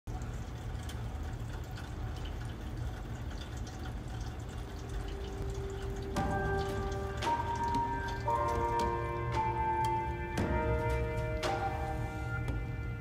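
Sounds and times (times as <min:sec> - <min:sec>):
music with sustained notes: 0:04.8 - 0:13.0
low held note: 0:05.3 - 0:13.0.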